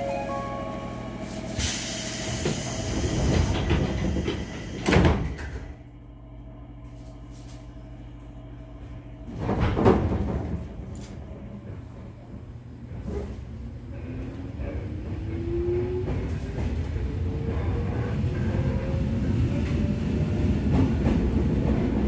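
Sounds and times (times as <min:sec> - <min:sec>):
train doors hissing air: 0:01.2 - 0:05.6.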